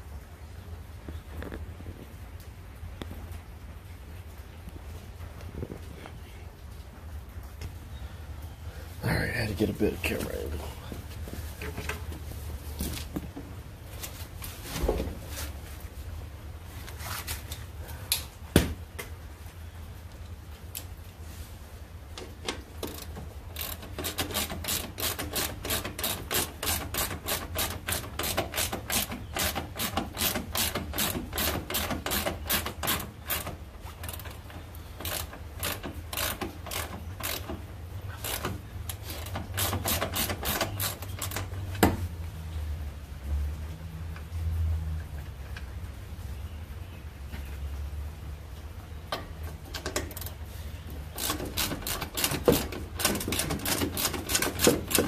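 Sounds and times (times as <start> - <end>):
ratchet wrench clicking: 22.8 - 37.6, 38.2 - 41.5, 51.1 - 55.0.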